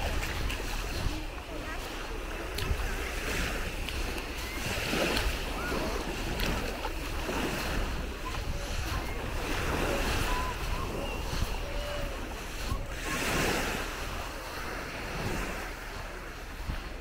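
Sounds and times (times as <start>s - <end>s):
waves lapping on sandy shore: 0.0s - 17.0s
wind buffeting microphone: 0.0s - 17.0s.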